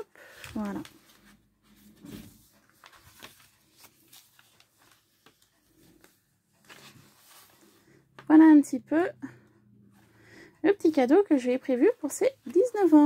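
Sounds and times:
paper pages rustling: 0.2 - 8.3.

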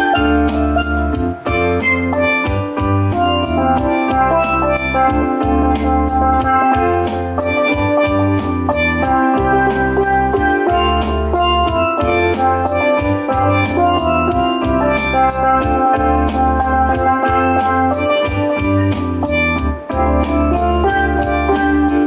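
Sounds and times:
steel drum music: 0.0 - 22.0.

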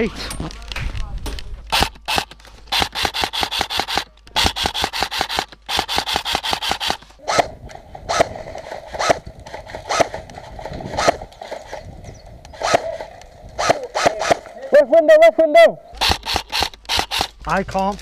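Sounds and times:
airsoft rifle shots: 1.7 - 11.8, 12.5 - 14.7, 15.9 - 17.4.

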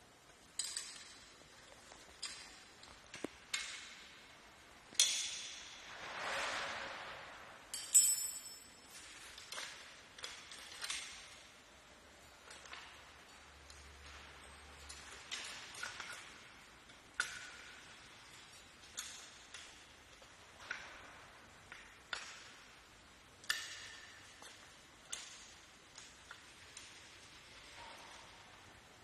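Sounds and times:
metal clinks and taps: 0.4 - 4.0, 7.7 - 11.4, 12.2 - 21.0.

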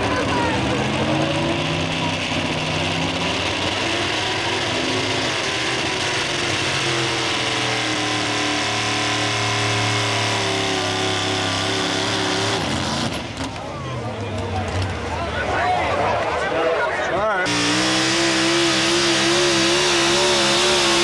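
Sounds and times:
truck engine idling: 0.0 - 21.0.

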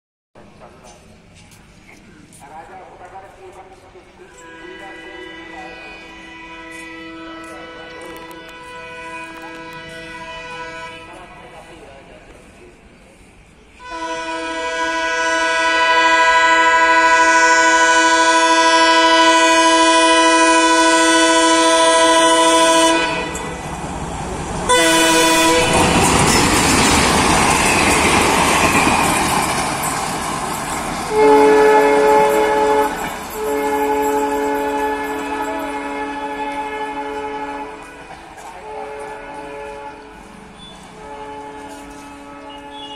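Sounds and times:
train wheels on rails: 0.4 - 42.9
locomotive horn blasts: 4.3 - 11.3, 13.8 - 23.6, 24.7 - 26.0, 31.1 - 42.9.

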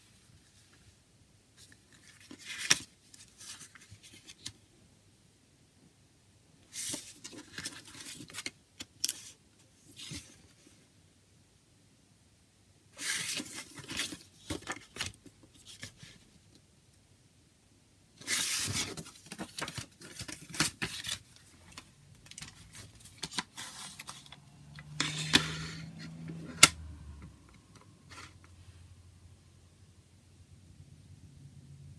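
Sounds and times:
paper booklet rustling: 1.6 - 4.6, 6.7 - 10.7, 13.0 - 16.2, 18.2 - 26.7.

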